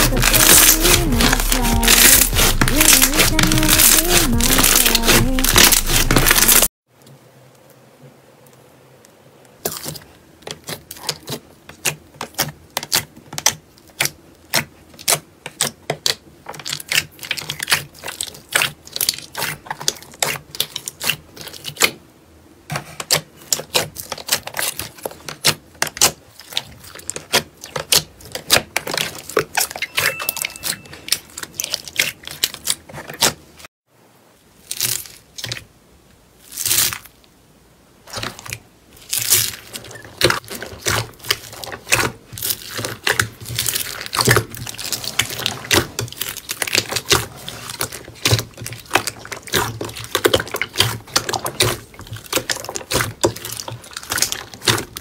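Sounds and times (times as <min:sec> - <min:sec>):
hand raking through beads: 0:00.0 - 0:06.7
slime kneaded over beads crackling: 0:00.0 - 0:06.7, 0:09.6 - 0:21.9, 0:23.1 - 0:33.4, 0:34.6 - 0:35.7, 0:36.4 - 0:37.3, 0:38.0 - 0:55.0.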